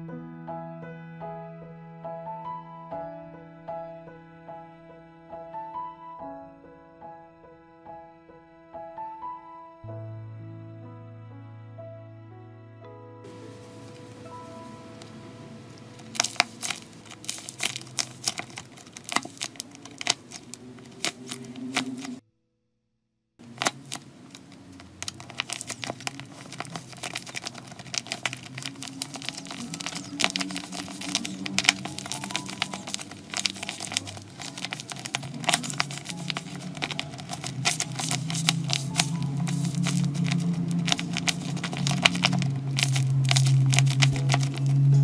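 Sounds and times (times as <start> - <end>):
paper crinkling and popping: 13.3 - 22.2, 23.4 - 45.0.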